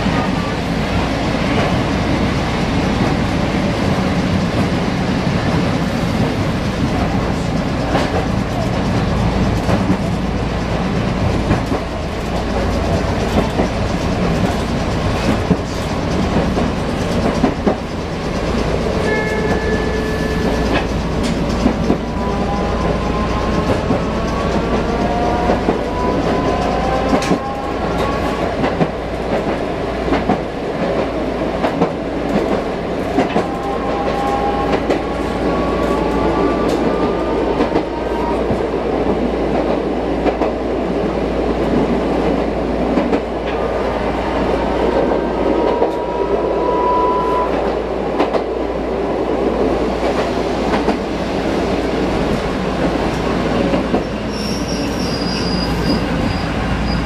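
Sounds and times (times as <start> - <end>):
tram running noise: 0.0 - 57.0
wheels clicking over rail joints: 6.2 - 38.5.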